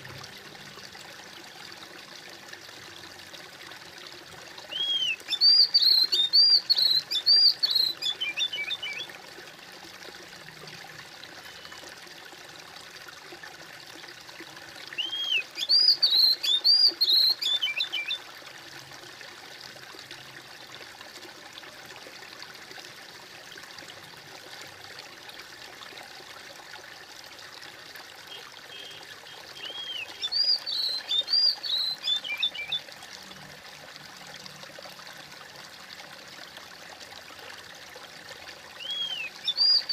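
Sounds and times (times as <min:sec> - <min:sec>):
small stream trickling: 0:00.0 - 0:39.9
bird singing: 0:04.7 - 0:09.1, 0:15.0 - 0:18.2, 0:28.7 - 0:32.9, 0:38.8 - 0:39.9.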